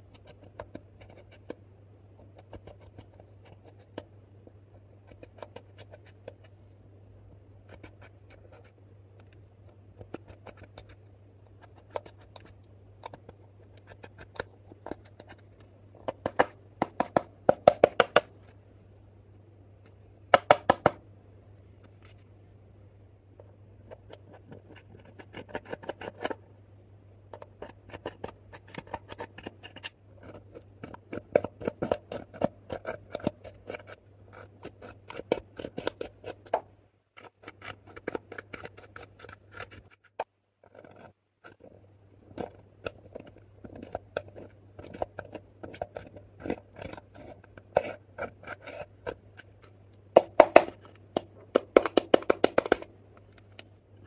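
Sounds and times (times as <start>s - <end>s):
metal tool scraping makeup powder: 27.4s - 36.5s, 37.2s - 49.5s.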